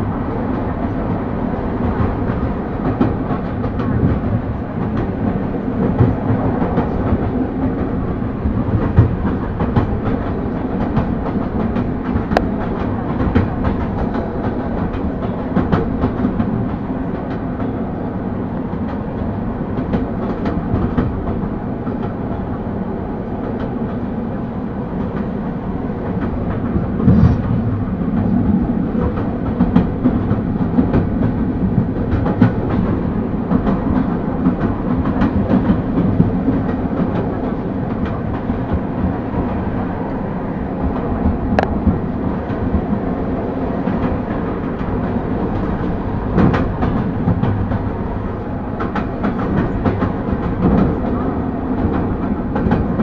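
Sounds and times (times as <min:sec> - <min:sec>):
train wheels rumbling on rails: 0:00.0 - 0:53.0
wheels clicking over rail joints: 0:40.8 - 0:53.0.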